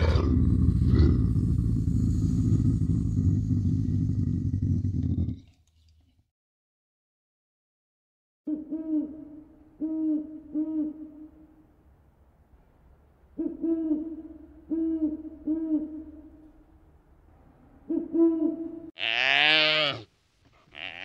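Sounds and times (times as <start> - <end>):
owl hooting: 8.5 - 11.5, 13.4 - 16.5.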